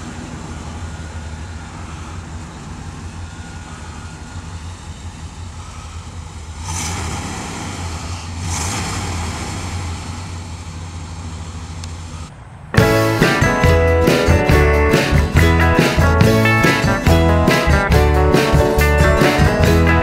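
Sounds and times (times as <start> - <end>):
engine exhaust running: 0.0 - 20.0
engine revving blips: 0.0 - 20.0.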